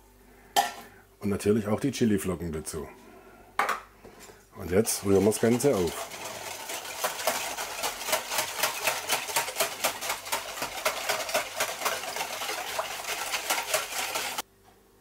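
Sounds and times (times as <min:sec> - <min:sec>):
wire whisk beating liquid: 0:04.7 - 0:14.4.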